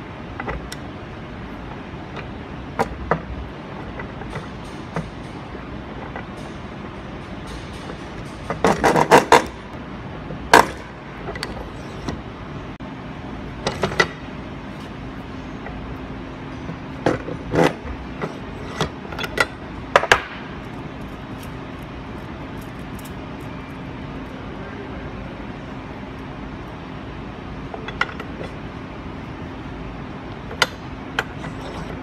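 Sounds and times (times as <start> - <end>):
metal parts clinking in press: 30.4 - 32.0.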